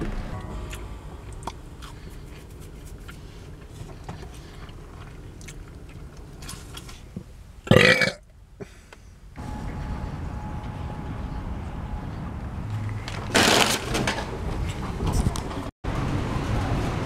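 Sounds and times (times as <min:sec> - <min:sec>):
man burping loudly: 0:07.7 - 0:08.2.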